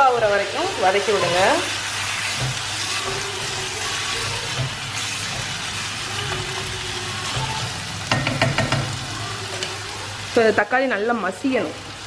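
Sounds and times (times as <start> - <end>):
vegetables sizzling in a pan: 0.0 - 12.0
spatula clacking against pan: 2.0 - 9.0.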